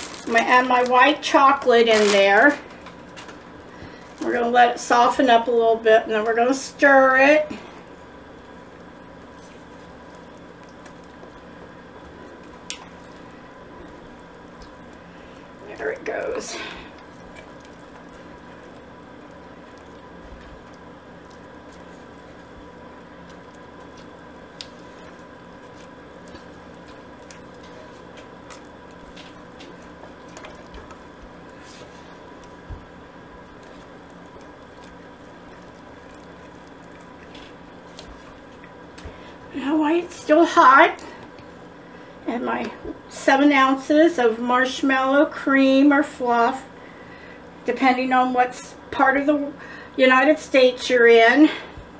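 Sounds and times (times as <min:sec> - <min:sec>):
faint steady hum: 0:00.0 - 0:51.9
spatula stirring thick fudge: 0:08.5 - 0:41.6.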